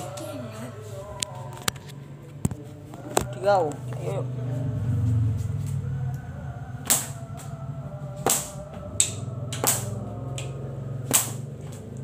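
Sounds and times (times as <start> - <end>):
whip cracking: 6.8 - 7.2, 8.2 - 10.0, 11.1 - 11.5.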